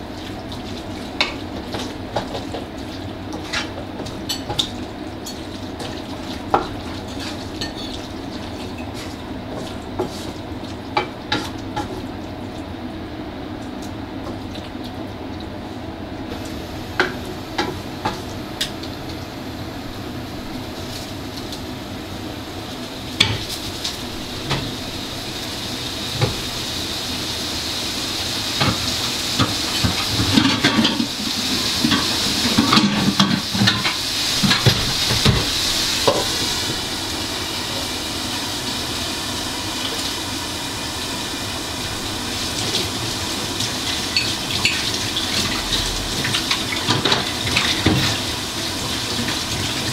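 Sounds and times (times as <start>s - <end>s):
cooking hiss: 16.3s - 49.9s.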